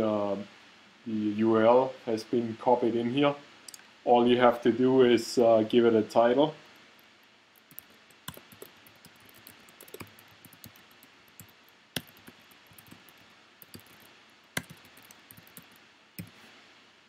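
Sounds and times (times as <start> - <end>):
typing on computer keyboard: 7.6 - 16.4.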